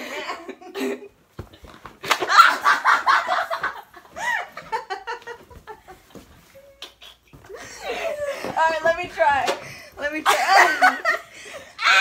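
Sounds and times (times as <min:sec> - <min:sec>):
girls laughing: 0:00.0 - 0:01.3, 0:02.0 - 0:12.0
girl squealing: 0:11.8 - 0:12.0.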